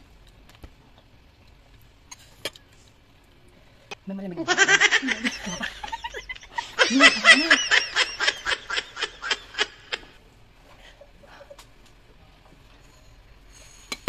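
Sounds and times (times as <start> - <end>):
woman laughing: 4.4 - 10.1.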